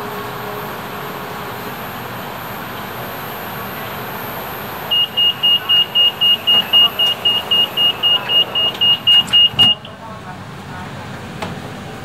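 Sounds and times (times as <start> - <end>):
train humming at station: 0.0 - 12.0
rapid high-pitched door warning beeps: 4.9 - 10.0.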